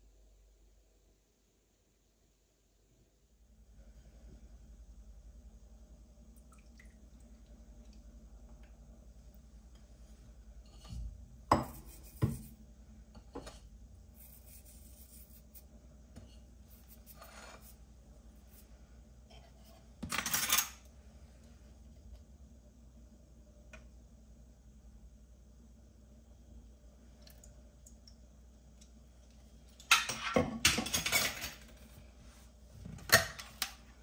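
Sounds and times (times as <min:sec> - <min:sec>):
soft scrapes: 0:14.1 - 0:20.0
crockery and utensils handled: 0:19.4 - 0:20.9, 0:29.8 - 0:31.8.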